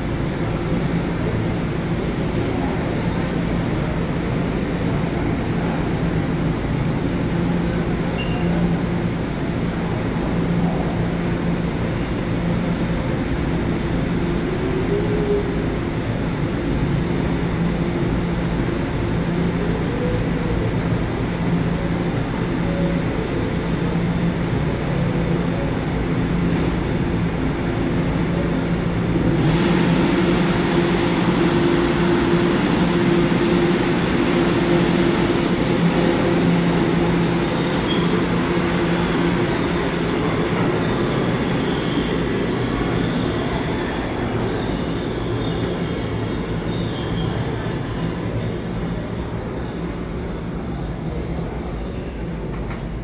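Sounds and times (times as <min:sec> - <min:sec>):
train equipment hum: 0:00.0 - 0:53.0
broad rushing noise: 0:08.8 - 0:44.4.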